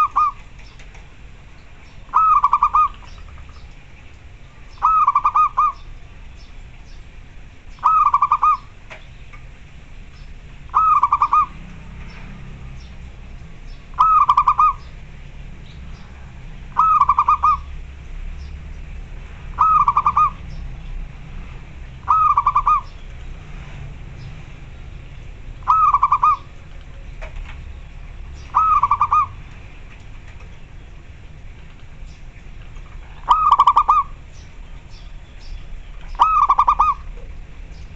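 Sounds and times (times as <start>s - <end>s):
dove cooing: 0.0s - 0.8s, 2.1s - 3.6s, 4.7s - 5.9s, 7.8s - 8.8s, 10.6s - 11.7s, 13.9s - 14.9s, 16.0s - 17.8s, 19.5s - 20.6s, 22.0s - 23.0s, 25.6s - 26.8s, 28.4s - 29.5s, 32.9s - 34.2s, 36.1s - 37.4s.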